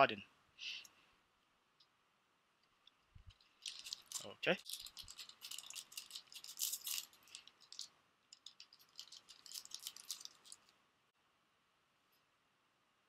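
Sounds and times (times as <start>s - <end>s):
foil wrapper crinkling: 3.3s - 10.7s.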